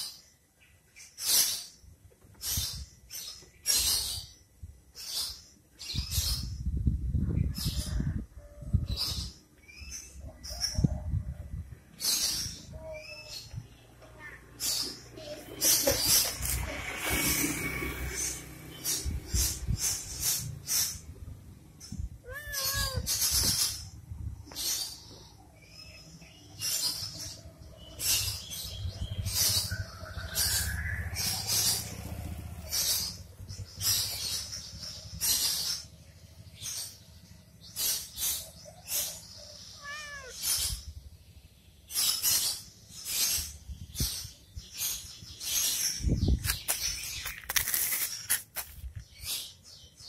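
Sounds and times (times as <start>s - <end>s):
cat meowing: 22.2s - 23.2s, 39.7s - 40.4s
rustling: 46.5s - 49.1s.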